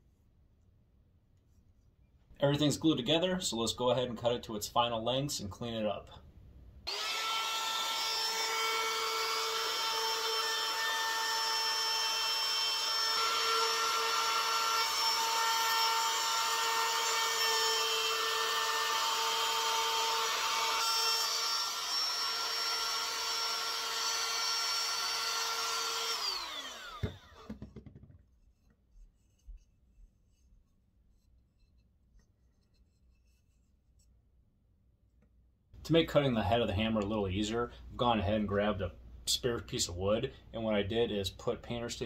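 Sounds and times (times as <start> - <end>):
trim router whining: 6.9 - 28.0.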